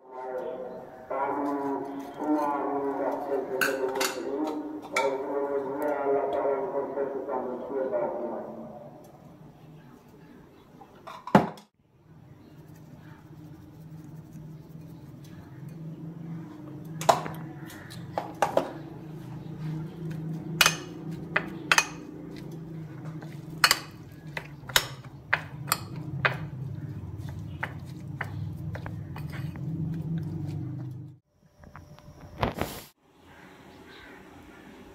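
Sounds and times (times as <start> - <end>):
spoon clinking and scraping bowl: 19.6 - 31.0
spoon knocking glass bowl: 20.6 - 22.1, 23.2 - 26.6.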